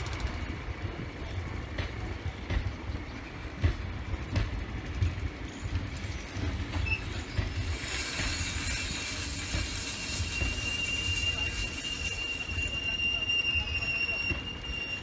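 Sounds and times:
train knocks: 0:00.0 - 0:15.0
train rumbling over rails: 0:00.0 - 0:15.0
train brakes squealing: 0:05.4 - 0:15.0.

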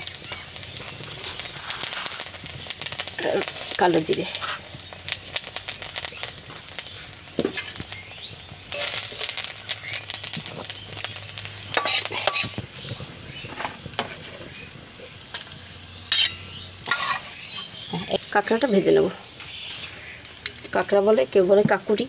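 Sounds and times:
metal spatula scraping a pan: 0:08.7 - 0:09.4, 0:11.7 - 0:12.6, 0:15.4 - 0:17.7.

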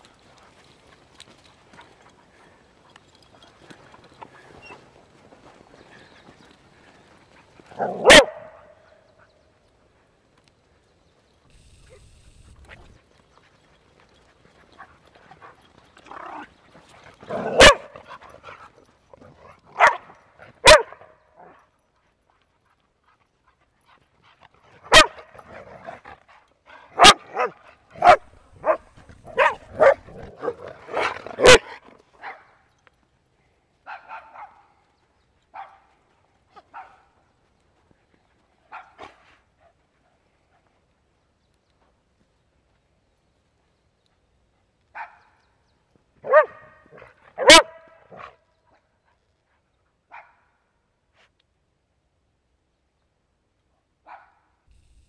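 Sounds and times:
dogs barking: 0:07.8 - 0:08.8, 0:17.3 - 0:18.0, 0:19.7 - 0:21.6, 0:24.9 - 0:25.3, 0:27.0 - 0:32.4, 0:46.2 - 0:48.4.

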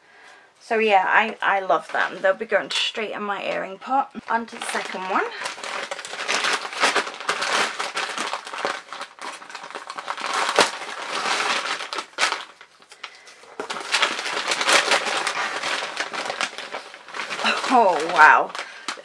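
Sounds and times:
packaging crinkling: 0:04.4 - 0:19.0.

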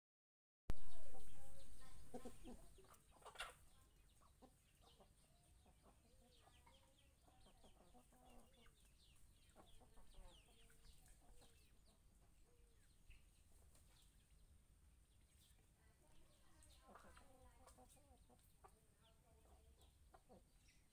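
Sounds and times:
chickens clucking: 0:00.7 - 0:20.9.

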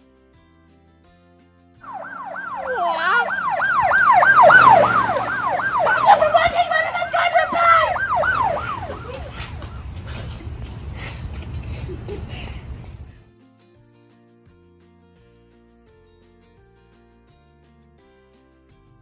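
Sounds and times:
emergency siren wailing: 0:01.8 - 0:10.0.

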